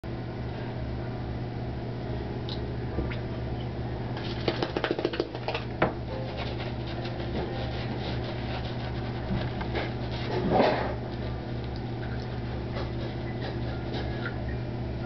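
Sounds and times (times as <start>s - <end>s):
low hum: 5.4s - 15.0s
shaving brush rubbing lather: 6.2s - 10.4s.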